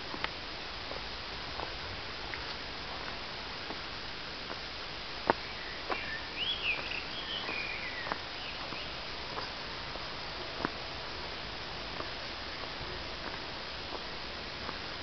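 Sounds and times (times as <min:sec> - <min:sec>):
footsteps on leafy dirt path: 0:00.0 - 0:15.0
steady hiss: 0:00.0 - 0:15.0
bird chirping: 0:05.4 - 0:09.0.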